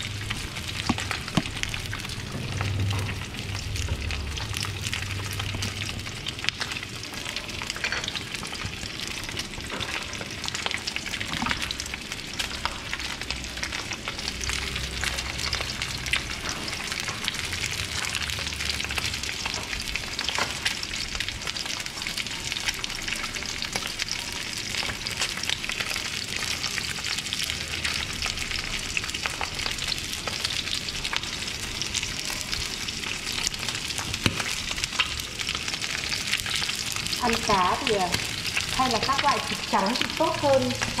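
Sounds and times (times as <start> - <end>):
fish frying in oil: 0.0 - 41.0.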